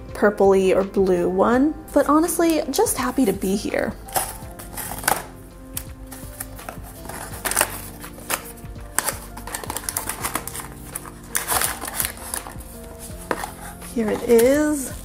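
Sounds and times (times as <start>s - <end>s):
background music: 0.0s - 15.0s
cardboard box tearing and rustling: 6.2s - 15.0s.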